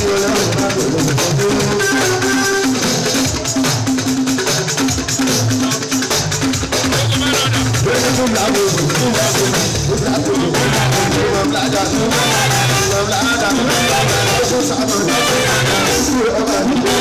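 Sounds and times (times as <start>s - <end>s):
drums: 0.0s - 17.0s
rattling percussion: 0.0s - 17.0s
bass guitar: 6.4s - 17.0s
singer singing into microphone: 6.9s - 17.0s.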